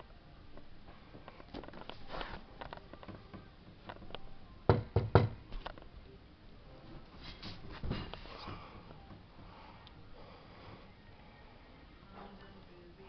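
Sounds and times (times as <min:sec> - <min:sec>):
faint clicks and rustling: 0:00.5 - 0:04.3.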